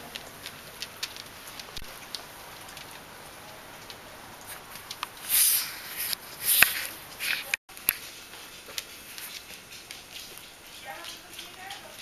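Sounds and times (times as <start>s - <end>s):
dogs scuffling and sniffing: 3.8s - 12.0s.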